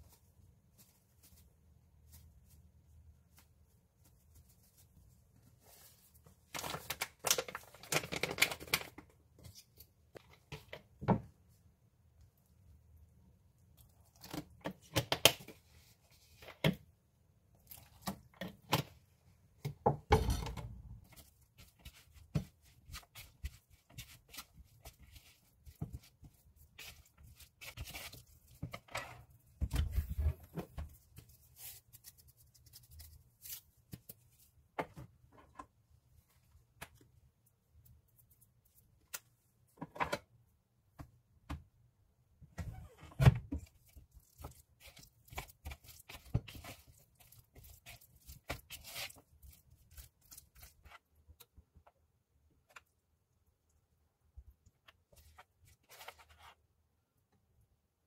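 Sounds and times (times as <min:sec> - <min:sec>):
chopsticks mixing batter in bowl: 0:21.0 - 0:28.9, 0:43.7 - 0:51.8.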